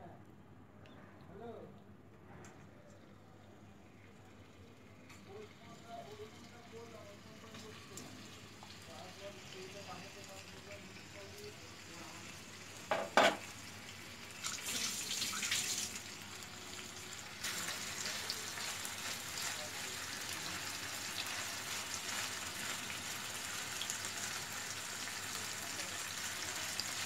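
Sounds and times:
food sizzling in hot oil: 7.6s - 27.0s.

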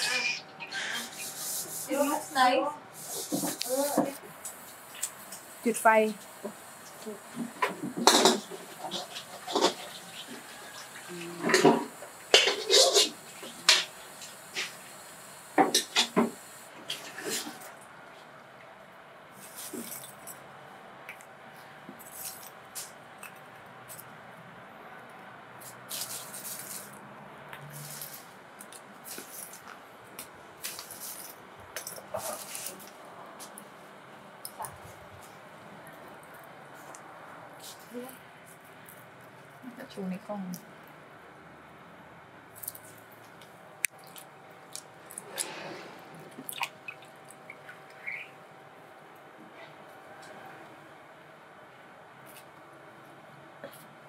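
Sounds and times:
water dripping: 43.8s - 45.5s, 46.2s - 48.4s
water sloshing in a pot: 43.9s - 48.2s.

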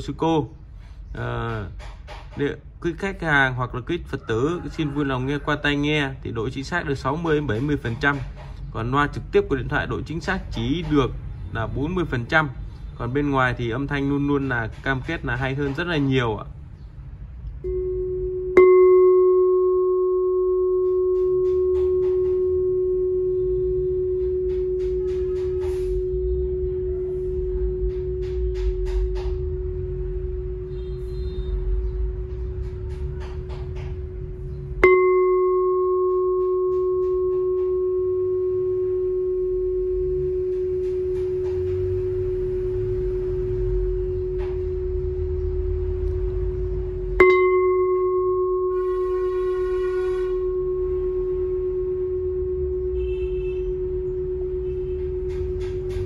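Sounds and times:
bowl bell ringing: 17.5s - 32.3s, 33.2s - 56.0s.

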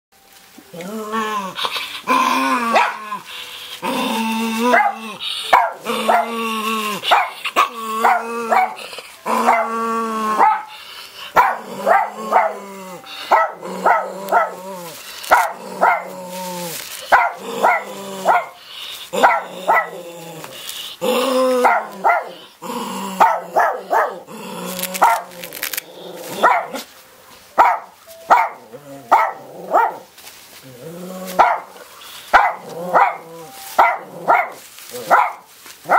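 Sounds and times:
dog barking: 2.8s - 3.0s, 4.7s - 6.3s, 7.1s - 7.4s, 8.0s - 8.8s, 10.4s - 10.7s, 11.4s - 12.6s, 13.3s - 14.5s, 15.3s - 16.1s, 17.1s - 18.6s, 19.2s - 19.9s, 21.6s - 22.4s, 23.2s - 24.2s, 26.4s - 26.8s, 27.6s - 30.0s, 31.4s - 31.7s, 32.3s - 33.2s, 33.8s - 35.9s
dog whining: 4.2s - 9.7s.

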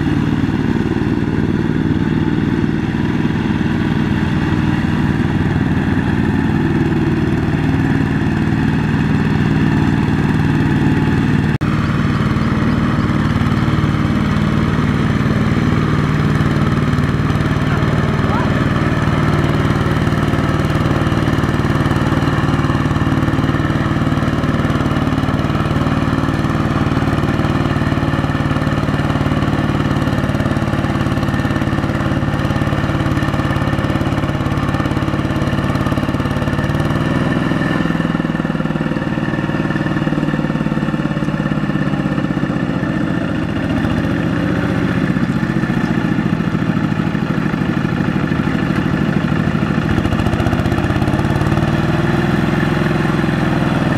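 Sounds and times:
diesel tractor engine running: 0.0s - 53.9s.

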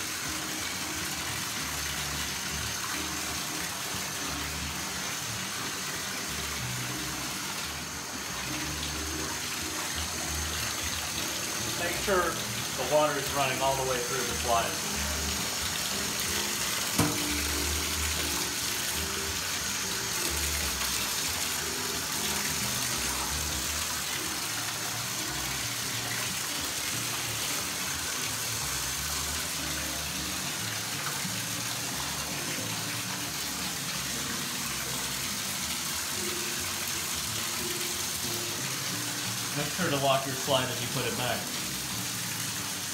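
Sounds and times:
faucet running into bathtub: 0.0s - 42.9s
water splashing into tub: 14.4s - 19.4s.

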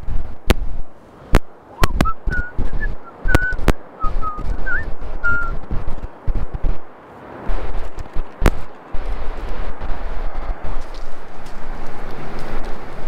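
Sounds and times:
short whistled notes: 1.8s - 5.6s.

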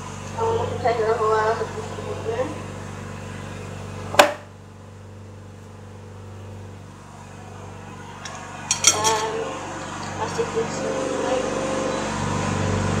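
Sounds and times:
low steady hum: 0.0s - 13.0s
kitchen scissors snipping: 8.3s - 9.3s.

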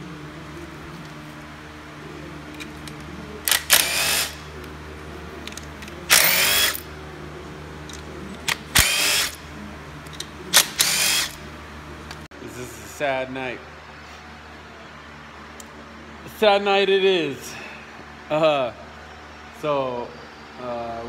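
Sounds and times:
power driver motor whining: 2.6s - 4.8s, 5.5s - 6.9s, 8.4s - 9.4s, 10.6s - 11.5s.

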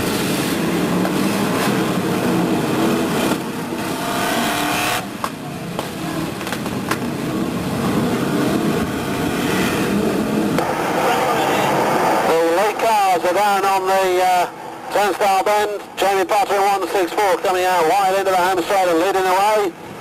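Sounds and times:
race car engines revving: 0.0s - 20.0s.

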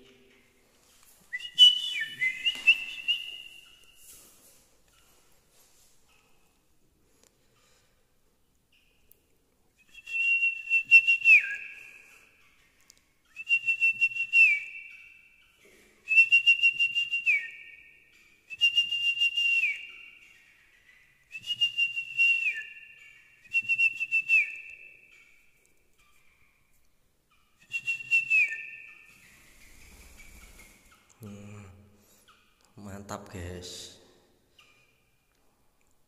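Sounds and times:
fluttering whistled call: 1.3s - 4.0s, 27.6s - 31.0s.

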